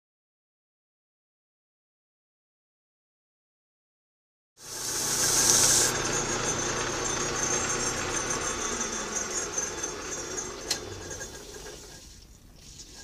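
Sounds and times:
metal lathe running: 4.6 - 12.0.

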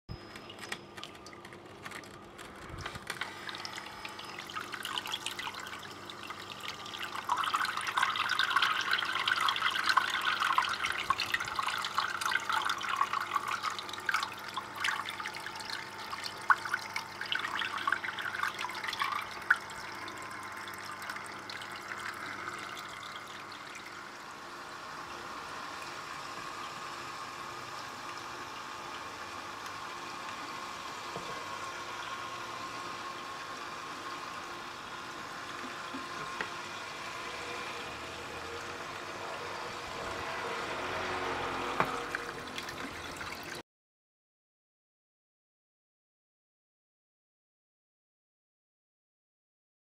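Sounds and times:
faint steady hum: 0.1 - 43.6
water trickling and splashing: 3.4 - 24.2, 35.4 - 43.6.

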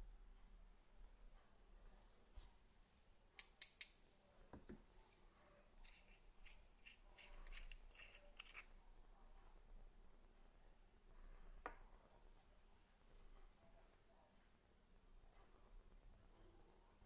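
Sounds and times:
light ticks and rubbing: 5.8 - 8.8.

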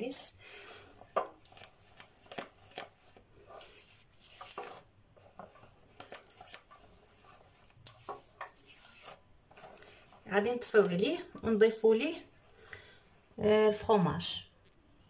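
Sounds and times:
spatula scraping saucepan: 1.5 - 11.6.

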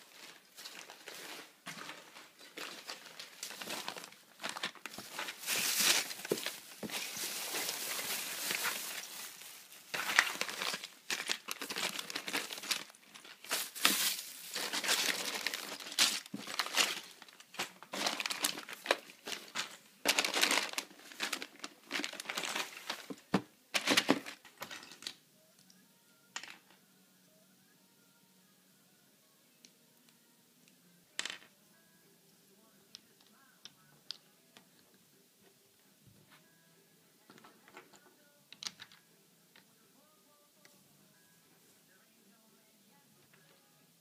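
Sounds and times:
plastic bags crinkling: 0.0 - 25.2.

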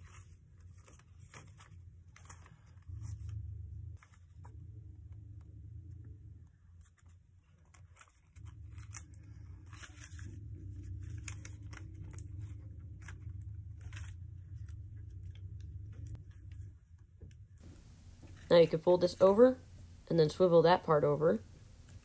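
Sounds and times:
paper folding and crinkling: 0.0 - 3.4, 6.7 - 17.0, 17.6 - 20.0
low hum: 2.7 - 7.6, 8.3 - 22.0.

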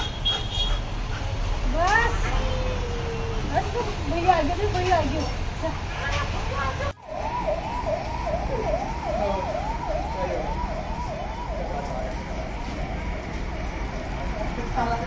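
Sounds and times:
siren in a fast yelp: 6.5 - 15.0.

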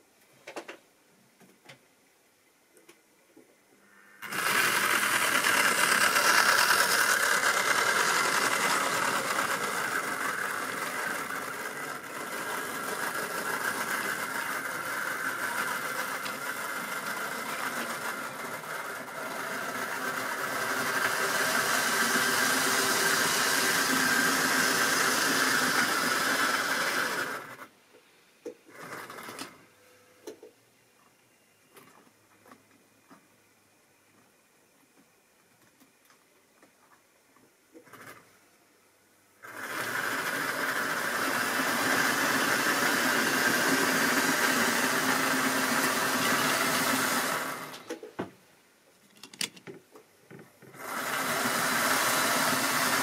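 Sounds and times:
model train motor whirring: 4.2 - 27.7, 39.4 - 48.0, 50.7 - 53.0
wheels rattling over rails: 4.2 - 27.7.

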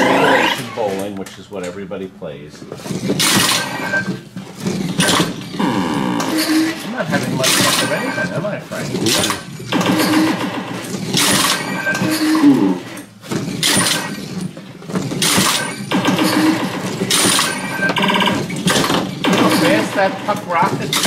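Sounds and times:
breaking bottles effect: 3.0 - 5.6, 6.2 - 8.4, 9.0 - 21.0.

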